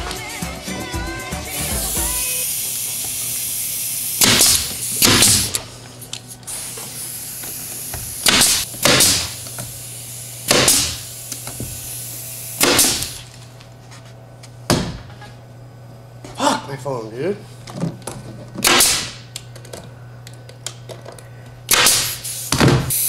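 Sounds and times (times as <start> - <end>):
nail gun shots with air hiss: 4.0 - 5.6, 7.8 - 9.6, 10.4 - 13.2, 18.6 - 19.2, 21.7 - 23.0.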